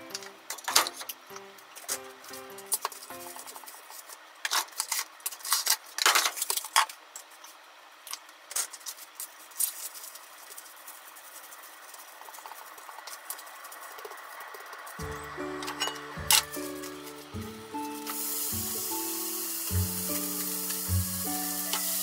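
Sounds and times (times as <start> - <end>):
cling film crinkling: 0.1 - 22.0.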